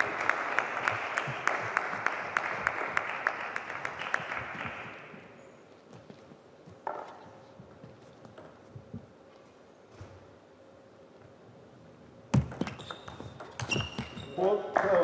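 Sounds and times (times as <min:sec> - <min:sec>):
small audience applauding: 0:00.0 - 0:05.1.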